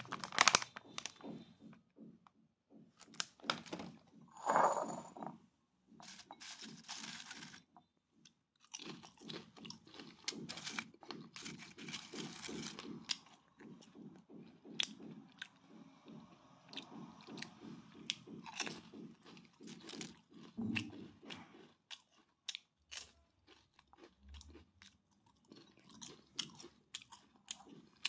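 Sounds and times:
potato chips crunching: 6.0s - 7.6s, 8.6s - 13.3s, 19.6s - 28.0s.

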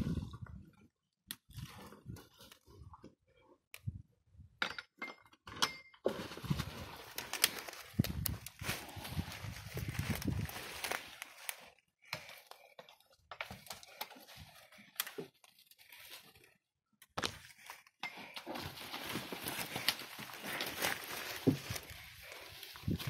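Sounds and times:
rustling in dry leaves: 6.1s - 11.7s, 18.5s - 23.0s.

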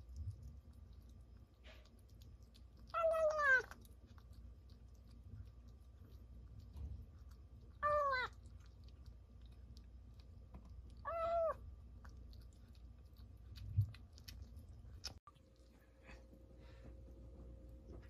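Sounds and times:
chewing clicks: 0.0s - 11.1s, 11.8s - 15.7s
kitten meowing: 2.9s - 3.7s, 7.8s - 8.4s, 11.0s - 11.6s.

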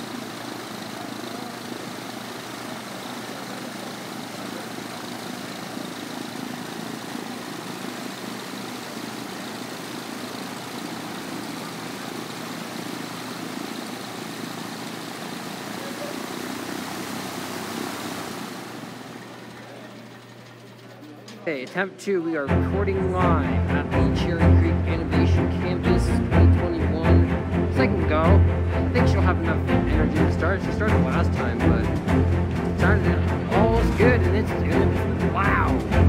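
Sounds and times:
propeller plane engine idling: 0.0s - 21.8s, 22.6s - 25.8s.

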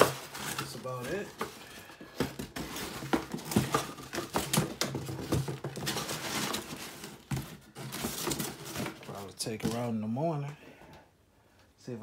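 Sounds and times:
cardboard knocking and rustling: 0.0s - 9.9s.

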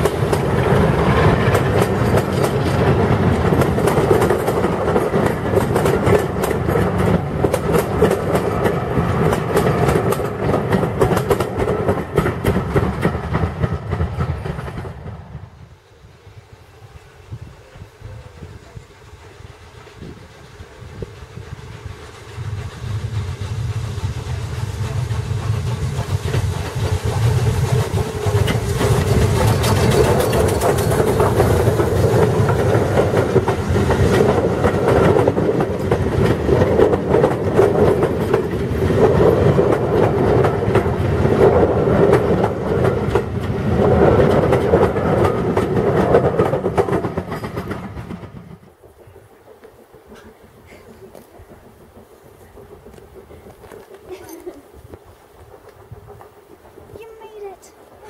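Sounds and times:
wheels clattering over rail joints: 0.0s - 15.2s, 24.6s - 58.0s
steam train passing: 0.0s - 58.0s.

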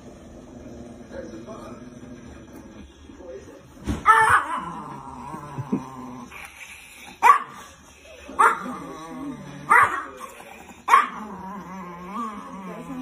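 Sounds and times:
small dog barking: 7.2s - 7.7s, 8.3s - 8.7s, 9.7s - 10.2s, 10.9s - 11.2s.

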